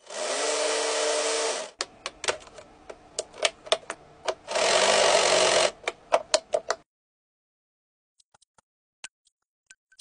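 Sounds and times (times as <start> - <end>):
small electric motor and gears: 0.0 - 1.8, 4.4 - 5.8
plastic parts clicking together: 1.8 - 4.4.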